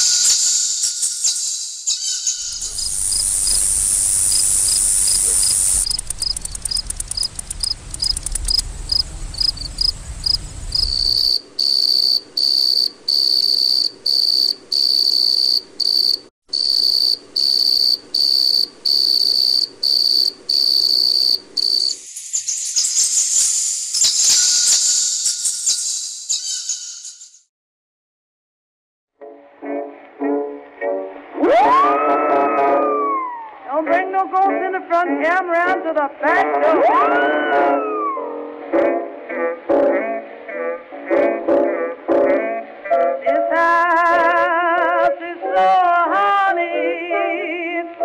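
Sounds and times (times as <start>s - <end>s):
crickets chirping: 0.0s - 27.3s
low hum: 2.6s - 11.2s.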